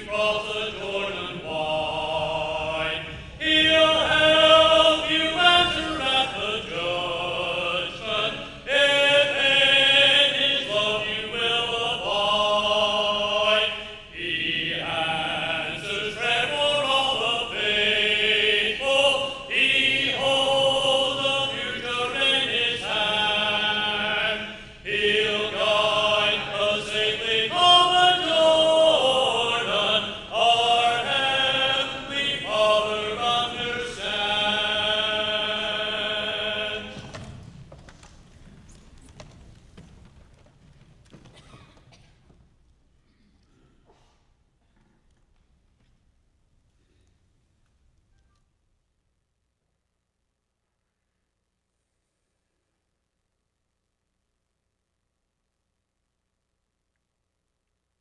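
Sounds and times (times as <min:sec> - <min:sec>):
congregation singing a hymn: 0:00.0 - 0:37.6.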